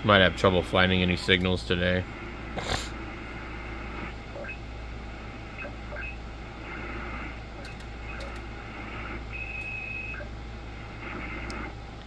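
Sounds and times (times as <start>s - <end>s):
radio receiver hiss and static: 0.0s - 12.0s
garbled radio signals: 5.5s - 11.8s.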